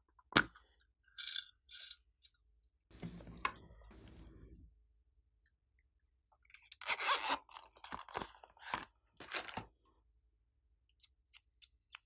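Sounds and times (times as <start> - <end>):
zipper pulled open: 6.8 - 7.5.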